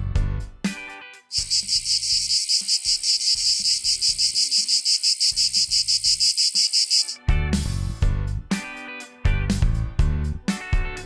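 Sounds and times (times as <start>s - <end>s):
cicadas buzzing: 1.3s - 7.2s.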